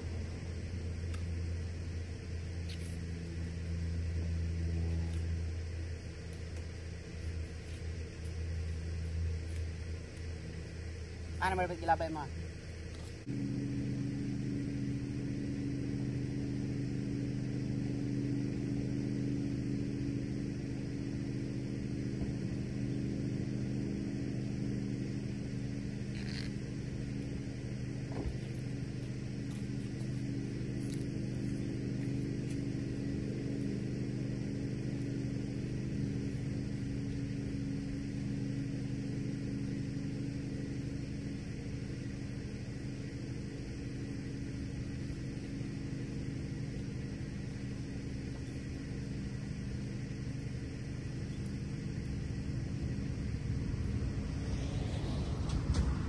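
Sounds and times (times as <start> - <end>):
motor humming: 12.3 - 56.0.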